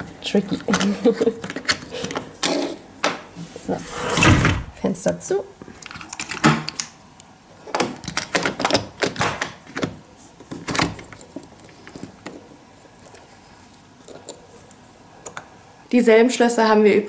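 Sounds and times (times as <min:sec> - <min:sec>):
window lock clicking and rattling: 0:07.7 - 0:10.0.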